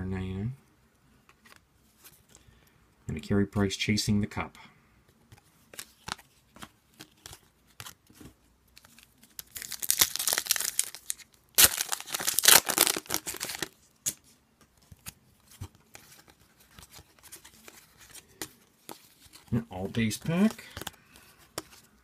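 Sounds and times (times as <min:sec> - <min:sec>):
foil wrapper tearing and crinkling: 0:08.8 - 0:13.7
cards clicking and tapping: 0:20.2 - 0:21.8.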